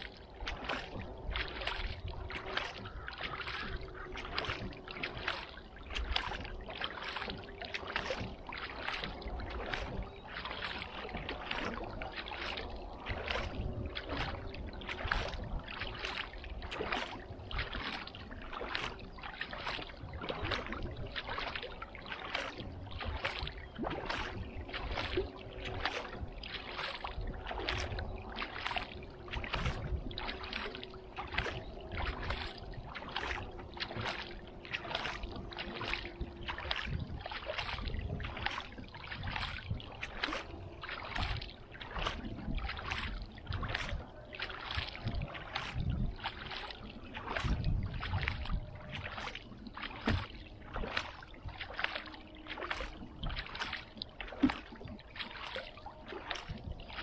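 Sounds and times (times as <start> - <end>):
paddle strokes in water: 0.0 - 57.0.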